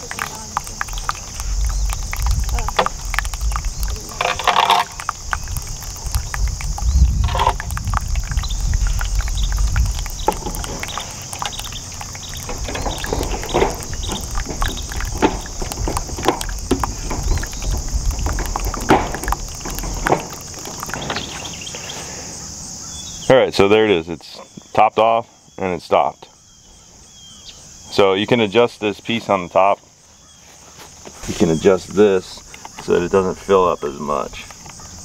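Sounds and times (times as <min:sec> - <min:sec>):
irregular clicks and knocks: 0:00.0 - 0:21.8
insects chorus: 0:00.0 - 0:35.0.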